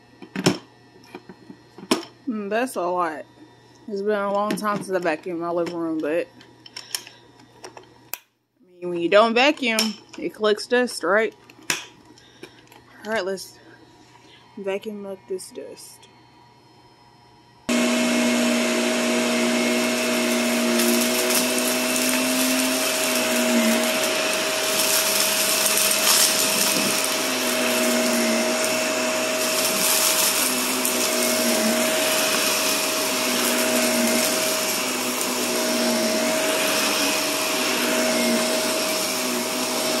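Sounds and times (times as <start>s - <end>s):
vacuum cleaner running: 13.0s - 40.0s.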